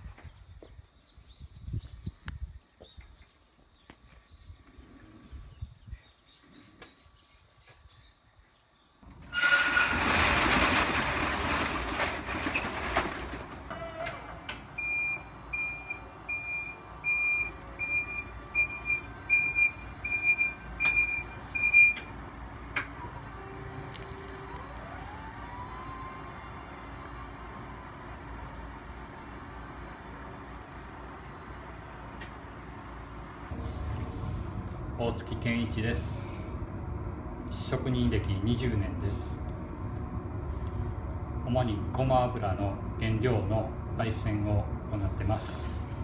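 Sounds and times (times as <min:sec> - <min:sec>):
metal roller shutter rattling: 0:09.1 - 0:14.5
forklift warning beeper: 0:14.7 - 0:22.1.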